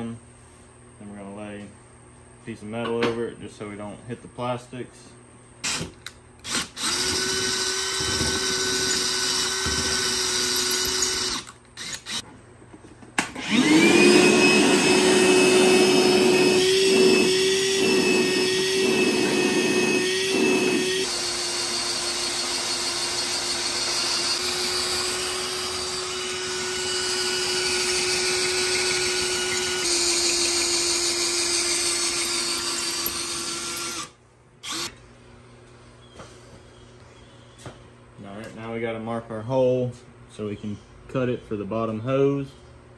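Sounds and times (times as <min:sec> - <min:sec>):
cordless drill boring metal: 0:05.6 - 0:12.2, 0:13.4 - 0:35.0
shop vacuum running: 0:13.2 - 0:35.0.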